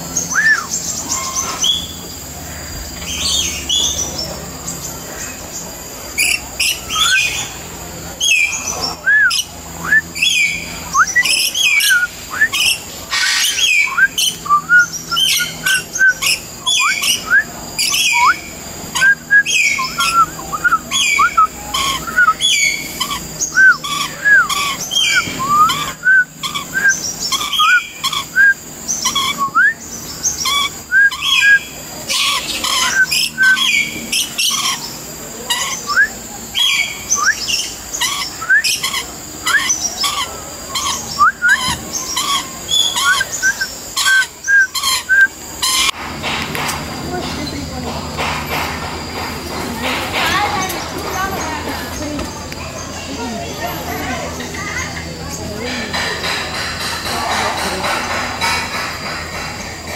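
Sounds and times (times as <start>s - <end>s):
birds whistling and chirping: 0.0s - 46.0s.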